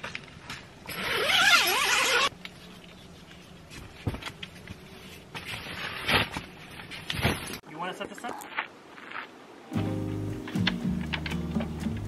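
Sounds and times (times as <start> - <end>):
tent zipper pulled: 0.9 - 2.4.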